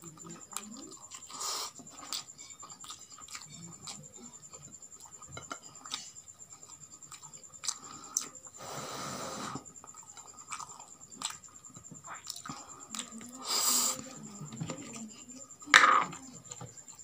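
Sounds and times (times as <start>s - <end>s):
chewing and smacking: 0.0s - 8.6s, 9.6s - 13.4s.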